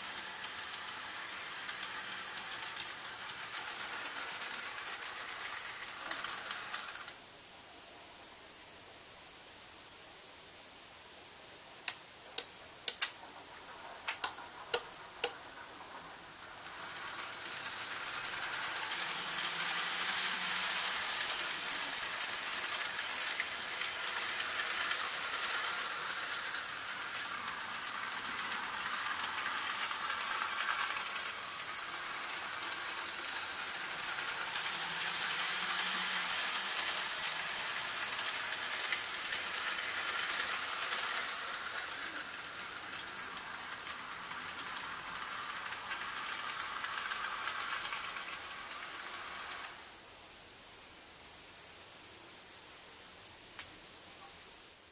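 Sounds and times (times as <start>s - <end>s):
model train rattling on track: 0.0s - 7.2s, 12.4s - 50.0s
sharp relay clicks: 11.8s - 13.2s, 14.0s - 15.4s.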